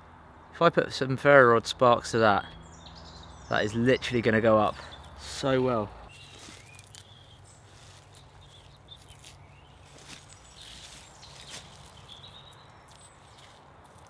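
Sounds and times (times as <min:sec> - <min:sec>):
birds chirping: 0:00.4 - 0:14.0
bark being peeled: 0:06.1 - 0:14.0.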